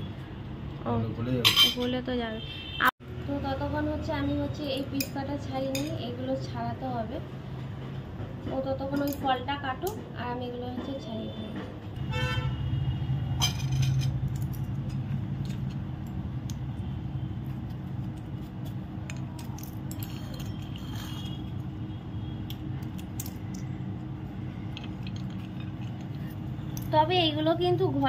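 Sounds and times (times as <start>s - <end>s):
pistachio shells cracking: 22.5s - 23.7s.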